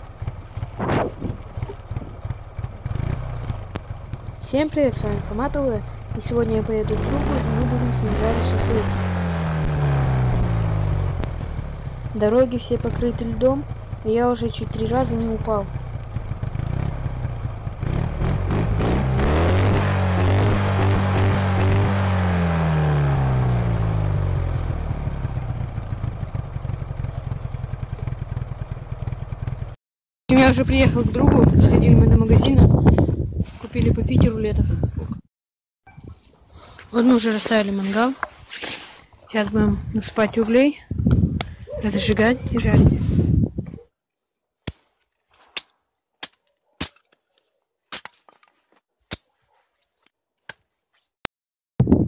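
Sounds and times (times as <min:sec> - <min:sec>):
wind buffeting microphone: 0:00.6 - 0:02.2, 0:30.4 - 0:35.2, 0:39.5 - 0:43.8, 0:51.8 - 0:52.0.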